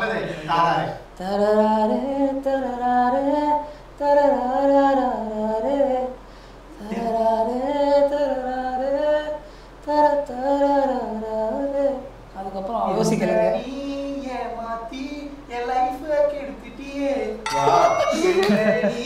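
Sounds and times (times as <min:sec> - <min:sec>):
person singing wordless melody: 0:12.9 - 0:19.0.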